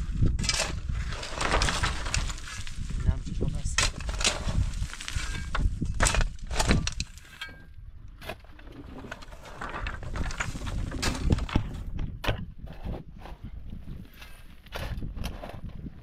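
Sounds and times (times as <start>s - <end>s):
shovel scraping stony soil: 0.0s - 16.0s
stones clattering: 0.2s - 12.2s.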